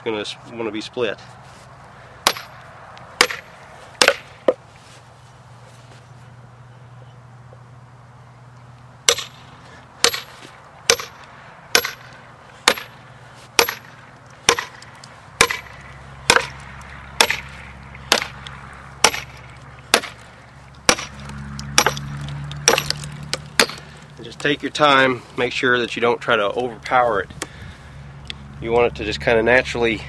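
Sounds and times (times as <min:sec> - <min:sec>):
sledgehammer striking steel wedge: 0:02.2 - 0:02.6, 0:03.2 - 0:04.6, 0:09.1 - 0:09.4, 0:10.0 - 0:13.0, 0:13.6 - 0:14.8, 0:15.4 - 0:18.4, 0:19.0 - 0:20.2, 0:20.8 - 0:23.9.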